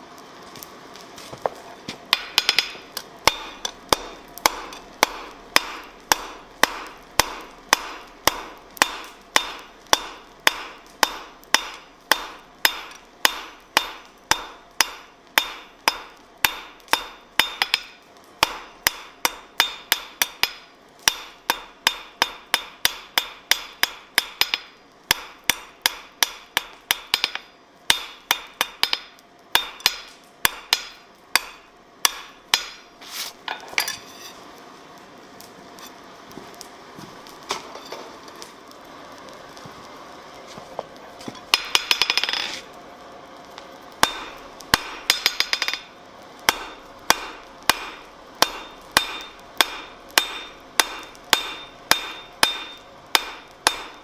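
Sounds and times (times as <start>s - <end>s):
hammer striking metal on anvil: 2.1s - 32.9s, 41.5s - 42.6s, 44.0s - 45.9s, 46.5s - 54.0s.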